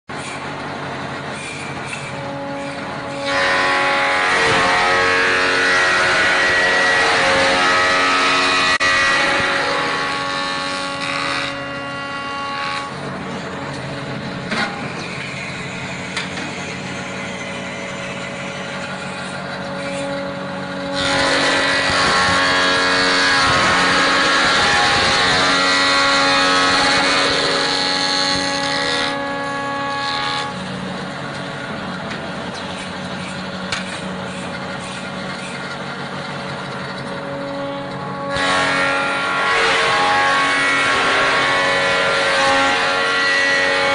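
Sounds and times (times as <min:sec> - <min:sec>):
lathe motors whining: 0:00.3 - 0:43.9
cutter drum cutting wood: 0:01.4 - 0:13.1, 0:18.6 - 0:31.5, 0:36.9 - 0:43.9.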